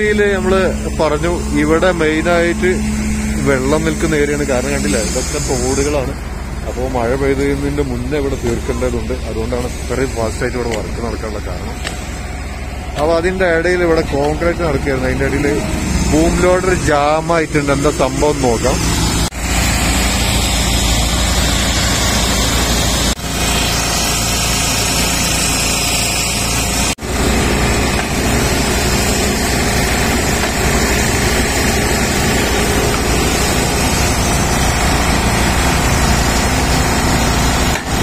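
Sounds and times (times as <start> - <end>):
diesel truck engine running: 0.0 - 38.0.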